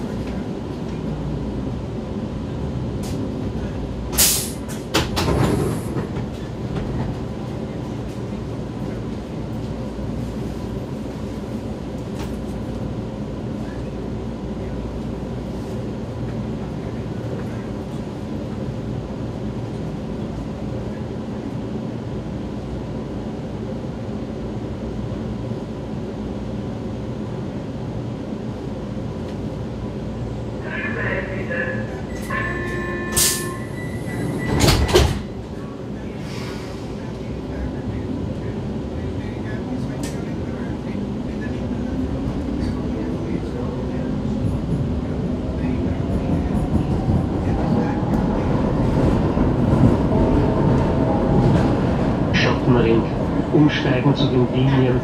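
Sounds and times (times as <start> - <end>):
train rumbling: 0.0 - 55.0
train brakes hissing: 4.2 - 4.7, 32.2 - 35.1, 36.2 - 37.0.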